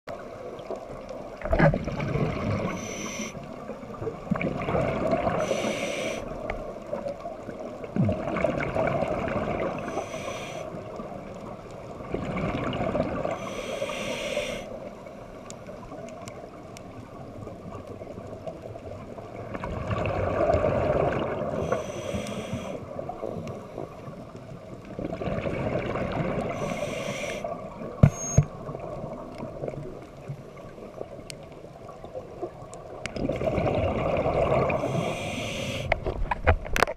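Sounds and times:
exhaled bubbles rushing: 0.7 - 5.6, 7.6 - 9.9, 12.0 - 13.4, 19.4 - 21.6, 24.9 - 26.7, 32.3 - 36.8
regulator inhale hiss: 2.6 - 3.5, 5.3 - 6.5, 9.8 - 11.0, 13.3 - 14.9, 21.6 - 23.9, 26.5 - 28.4, 34.7 - 36.0.

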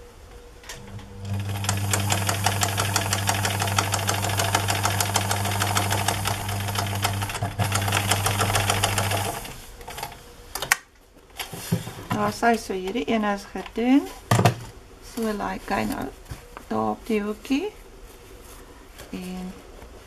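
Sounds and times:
sewing machine stitching: 1.2 - 10.1.

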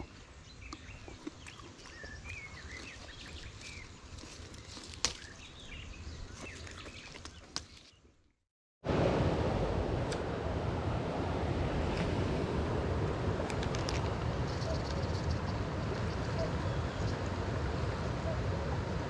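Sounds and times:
small birds chirping: 0.0 - 8.1, 14.3 - 17.3
branches rustling: 1.8 - 8.0
sharp clicks of branches: 4.2 - 5.4.

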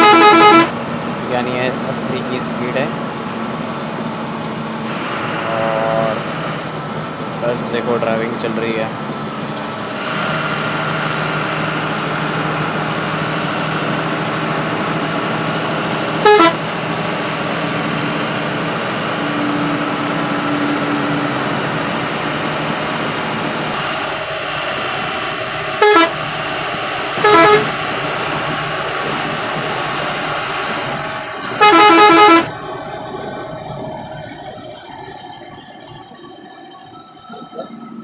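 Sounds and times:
bus horn blasts: 0.0 - 0.8, 16.0 - 17.0, 25.6 - 28.0, 31.4 - 32.7
bus engine and road drone: 0.0 - 38.0.

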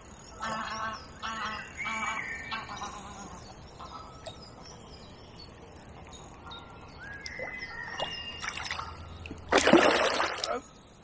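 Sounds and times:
songbirds singing faintly: 0.0 - 11.0
fish splashing at the surface: 9.5 - 10.6.

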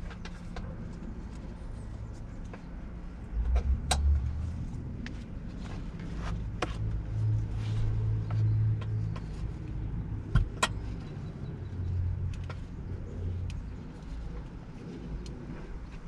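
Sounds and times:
low steady rumble: 0.0 - 16.0.

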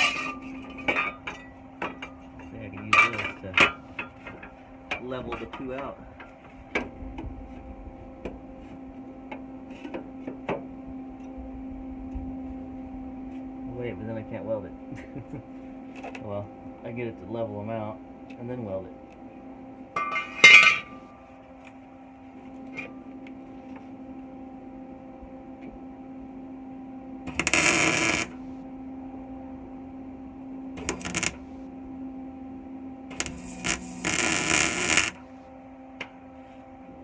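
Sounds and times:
electrical hum: 20.5 - 36.0
welding arc crackle: 27.3 - 28.5, 30.8 - 31.6, 33.1 - 35.3.

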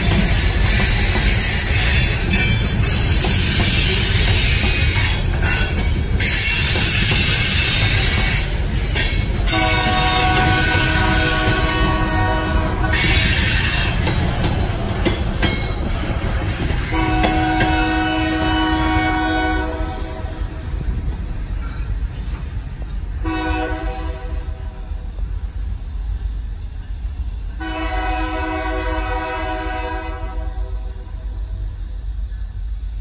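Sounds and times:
high wheel squeal: 0.0 - 12.2
freight car wheels rumbling: 0.0 - 18.0
locomotive air horn blasts: 9.5 - 14.0, 16.8 - 20.6, 23.2 - 24.9, 27.6 - 31.2.

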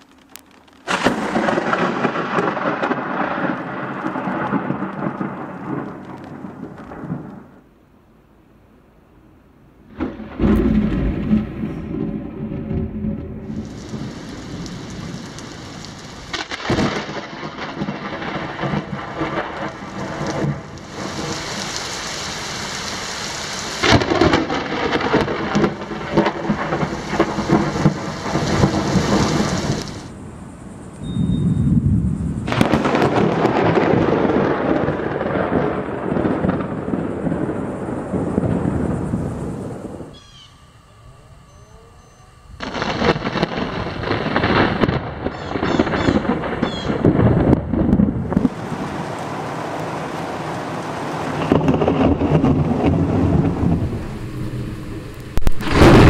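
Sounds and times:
lightning strikes cracking: 0.0 - 7.7, 9.8 - 30.8, 31.5 - 40.3, 42.5 - 56.0
rumbling thunder: 0.8 - 7.6, 9.9 - 40.5, 42.3 - 56.0
heavy rain hissing: 13.4 - 31.0, 31.7 - 41.5, 42.1 - 56.0.

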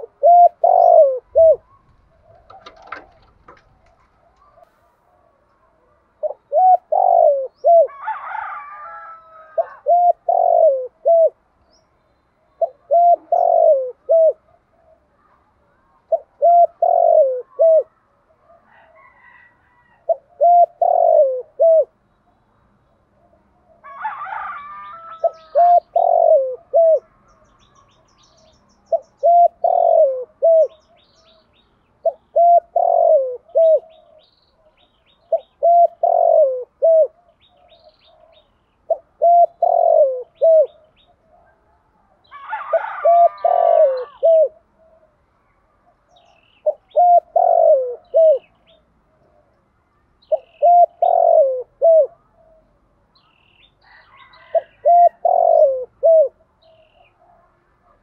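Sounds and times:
dove cooing: 0.0 - 11.4, 12.4 - 22.0, 23.1 - 28.0, 28.9 - 45.2, 45.8 - 49.6, 50.2 - 52.8, 53.9 - 58.0.

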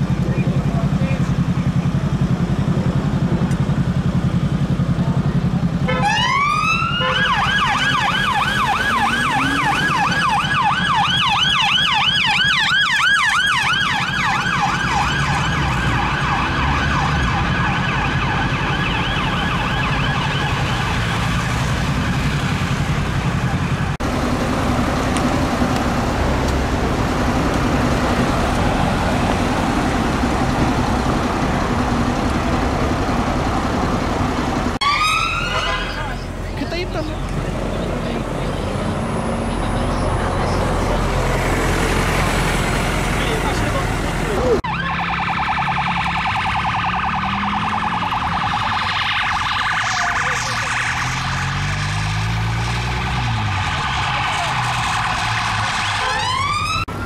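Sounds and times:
city traffic noise: 0.0 - 57.0
police siren yelping: 5.9 - 22.4, 34.8 - 36.3, 44.4 - 57.0.

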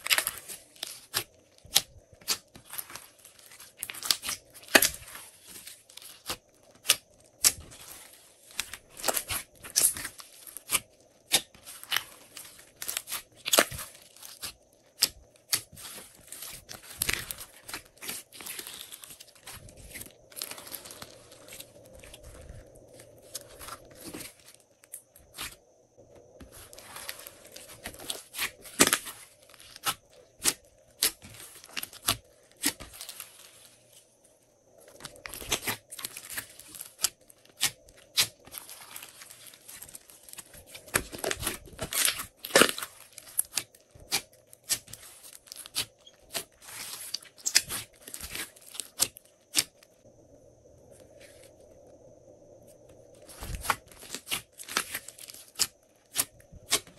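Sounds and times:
slime crackling and popping: 0.0 - 22.3, 35.2 - 49.8.

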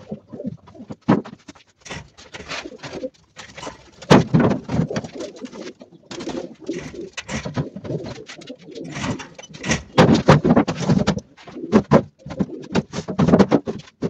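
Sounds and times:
pigeons cooing: 0.0 - 13.8.

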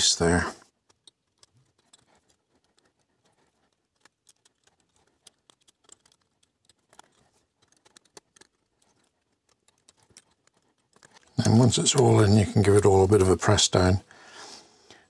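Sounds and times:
small clicks of metal tweezers: 0.6 - 12.2.

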